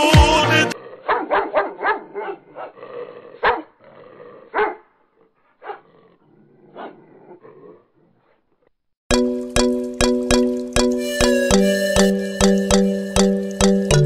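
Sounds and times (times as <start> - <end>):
music: 0.0 - 0.8, 9.1 - 14.0
dog barking: 1.0 - 3.8, 4.4 - 6.0, 6.7 - 8.4.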